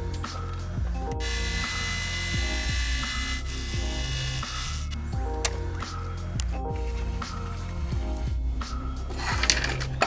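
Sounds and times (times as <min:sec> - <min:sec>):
background music with bass: 0:00.0 - 0:10.0
lathe motor whine and cutting hiss: 0:01.2 - 0:04.8.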